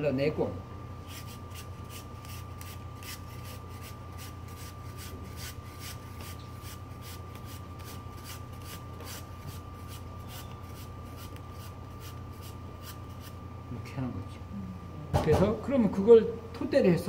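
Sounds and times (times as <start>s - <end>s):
steady low hum: 0.0s - 17.0s
knife paring apple skin: 1.1s - 13.4s.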